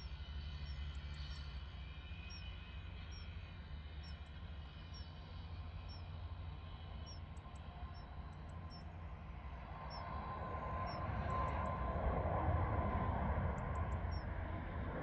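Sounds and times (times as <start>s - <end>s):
high jet engine whine: 0.0s - 15.0s
jet airliner roaring overhead: 5.5s - 15.0s
bird chirps: 14.0s - 14.3s.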